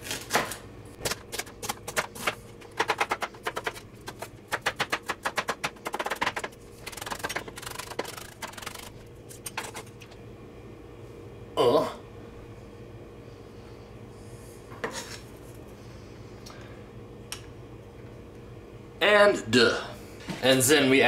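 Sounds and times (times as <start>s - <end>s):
knife chopping on cutting board: 0.3s - 8.9s.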